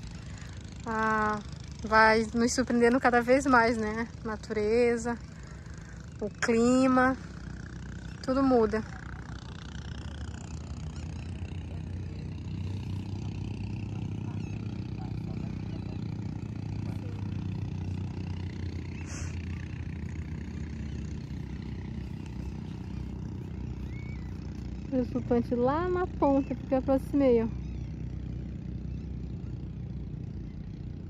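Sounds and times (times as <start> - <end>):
distant engine droning: 0.0 - 31.0.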